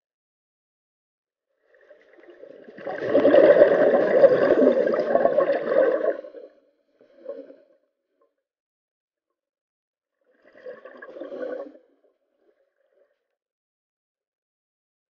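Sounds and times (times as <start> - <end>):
air bubbling underwater: 2.3 - 6.4.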